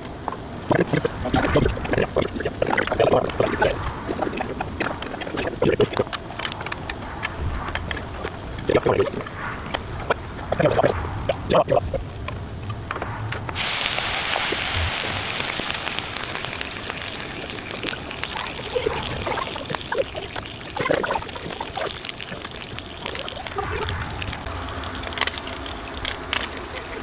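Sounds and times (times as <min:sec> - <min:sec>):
food sizzling on a griddle: 0:13.6 - 0:27.0.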